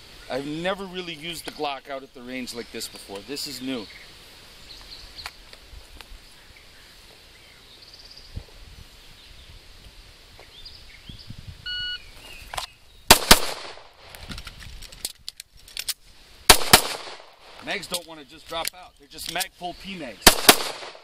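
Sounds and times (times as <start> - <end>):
electronic timer beep: 11.6 - 12.0
pistol shots: 13.1 - 13.9, 16.5 - 17.6, 20.2 - 21.0.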